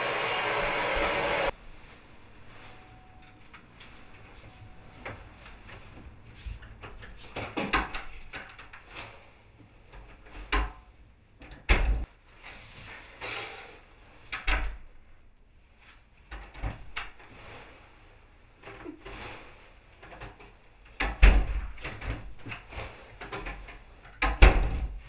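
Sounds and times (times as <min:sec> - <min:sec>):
soft rustling: 0:01.5 - 0:07.4.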